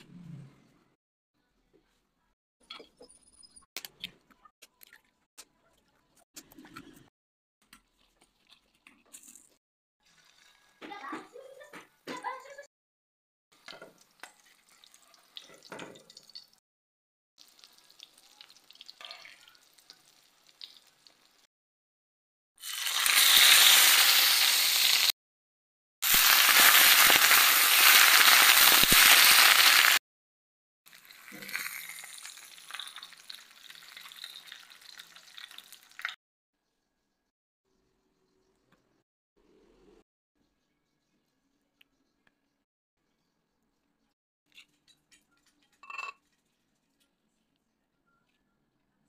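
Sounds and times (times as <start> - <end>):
food sizzling in hot oil: 13.6 - 16.6, 17.4 - 21.5, 22.6 - 25.2, 26.0 - 30.0, 30.9 - 36.2.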